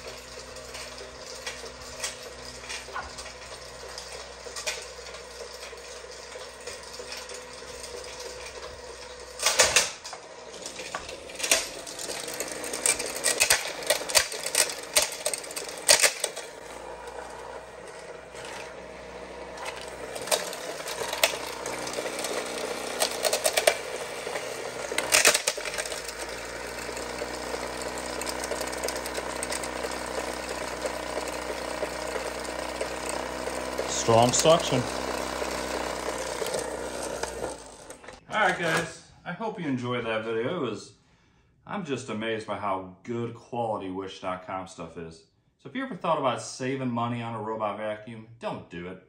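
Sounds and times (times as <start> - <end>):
robot vacuum motor whine: 0.0 - 38.8
side brush spinning: 0.0 - 38.8.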